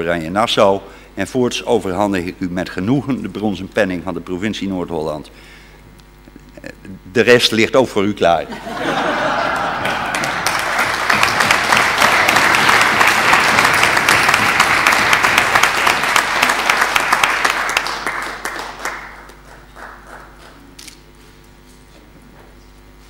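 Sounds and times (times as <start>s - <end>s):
audience applauding: 8.9s - 20.7s.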